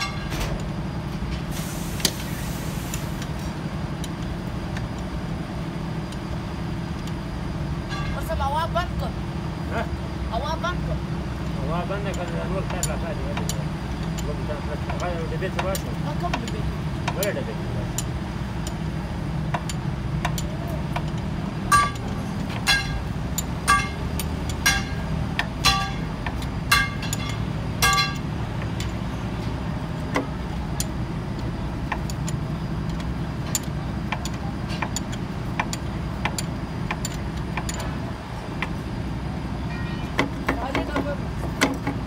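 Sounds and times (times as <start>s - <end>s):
steady low rumble: 0.0s - 39.7s
spanner clinking on metal: 11.4s - 18.9s, 19.5s - 38.0s.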